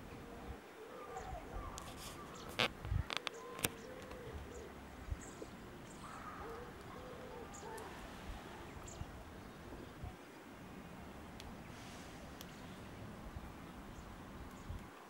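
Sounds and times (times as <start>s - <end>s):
bird cooing: 0.0s - 10.2s
small birds chirping: 0.0s - 15.0s.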